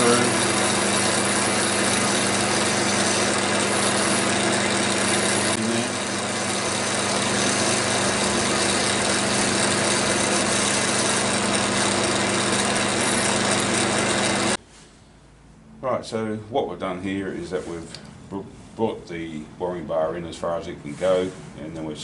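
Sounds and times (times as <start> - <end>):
boring bar cutting metal: 0.0 - 14.6
lathe motor and gear whine: 0.0 - 14.6.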